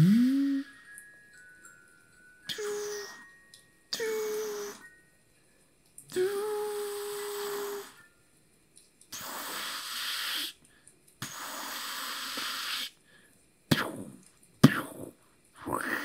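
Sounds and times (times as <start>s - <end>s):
breathy hissing: 0.0s - 0.7s, 2.5s - 3.3s, 6.2s - 8.0s, 9.1s - 10.6s, 11.2s - 14.0s
person humming breathy note: 0.0s - 0.8s, 2.5s - 3.3s, 4.0s - 4.9s, 6.1s - 8.1s.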